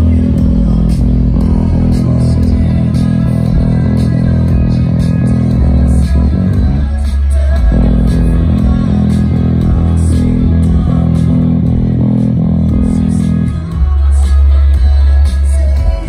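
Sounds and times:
electric bass and guitar: 0:00.0 - 0:16.0.

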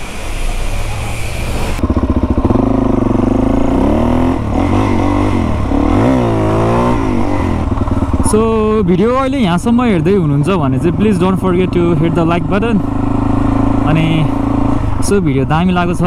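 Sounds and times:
pressure washer hissing: 0:00.0 - 0:01.8
motorcycle engine accelerating: 0:00.0 - 0:16.0.

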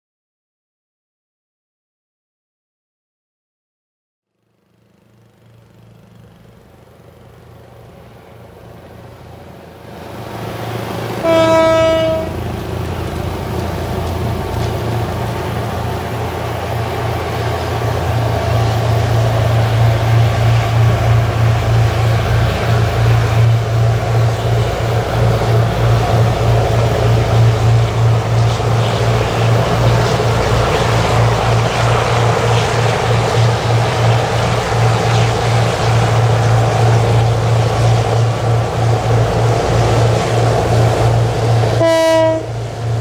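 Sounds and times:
locomotive engine drone: 0:04.3 - 0:43.0
train horn blast: 0:11.2 - 0:12.6, 0:41.7 - 0:42.6.

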